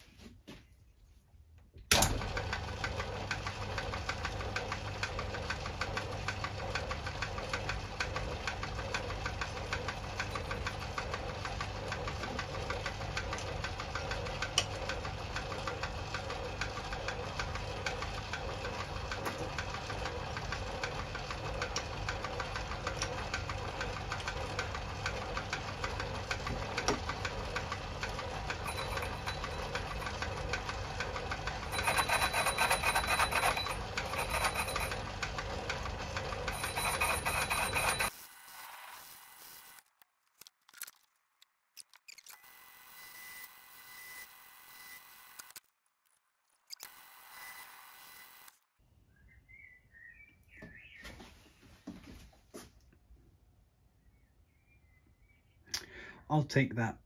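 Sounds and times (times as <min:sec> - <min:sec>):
lathe running: 0:02.2 - 0:39.8.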